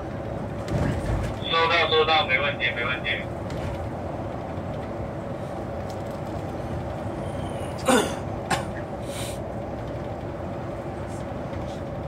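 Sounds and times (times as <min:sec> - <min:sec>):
bus engine and road noise: 0:00.0 - 0:12.0
person clearing throat: 0:07.8 - 0:08.8.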